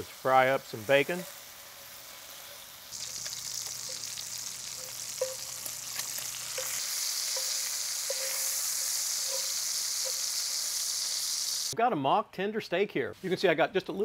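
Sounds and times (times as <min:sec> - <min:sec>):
bacon sizzling in a skillet: 0:00.0 - 0:11.8
fat ticking and popping: 0:02.9 - 0:10.3.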